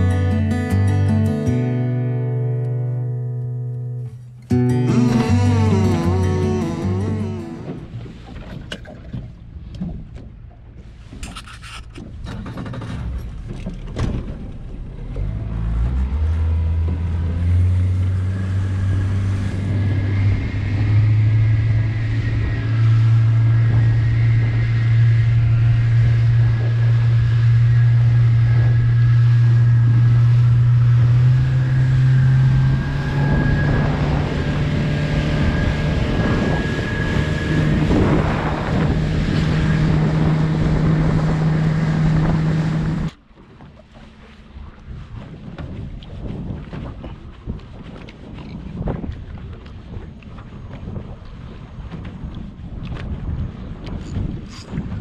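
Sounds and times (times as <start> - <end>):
boat engine revving up: 0.0 - 9.6, 11.6 - 45.8.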